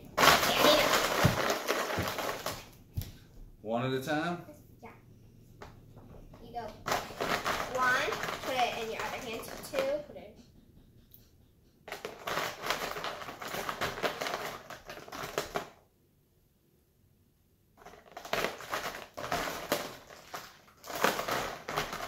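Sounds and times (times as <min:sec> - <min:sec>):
plastic markers rattling in bin: 0:00.0 - 0:02.7, 0:06.6 - 0:10.1, 0:11.9 - 0:15.8, 0:17.8 - 0:22.0.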